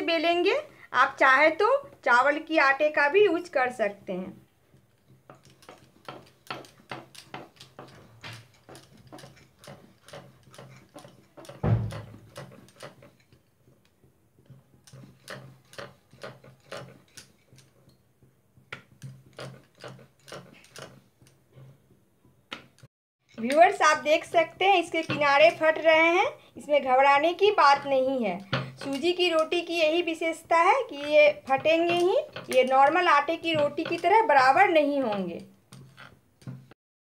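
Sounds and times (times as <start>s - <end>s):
rolling pin knocking on board: 5.2s - 13.1s
heavy thump: 11.6s - 12.2s.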